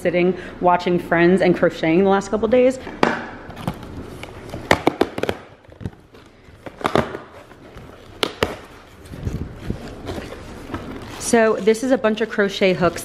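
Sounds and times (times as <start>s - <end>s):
cardboard rustling: 3.5s - 13.0s
cardboard box cracking and knocking: 4.5s - 11.2s.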